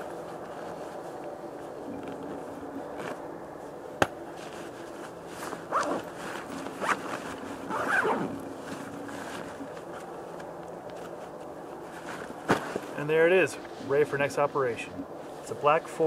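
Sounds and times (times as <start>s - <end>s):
zipper being pulled shut: 5.7s - 8.4s.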